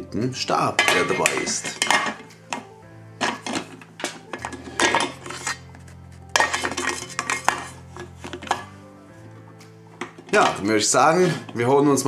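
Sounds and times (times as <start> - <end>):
metal clinking and scraping: 0.8 - 8.8, 9.9 - 11.6.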